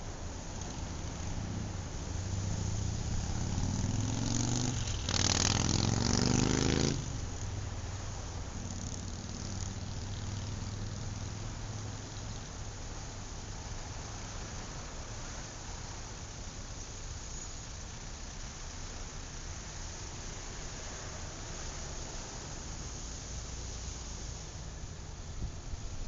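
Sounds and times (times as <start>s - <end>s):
vehicle engine passing by: 0.0s - 12.5s
wind and road noise: 0.0s - 26.0s.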